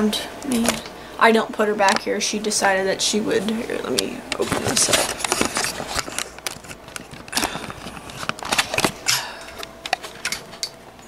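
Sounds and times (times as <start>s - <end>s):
camera handling noise: 4.8s - 9.0s.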